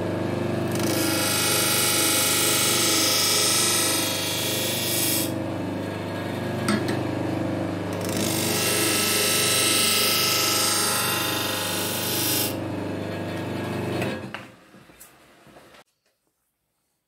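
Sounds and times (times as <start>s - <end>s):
grinder running: 0.0s - 14.4s.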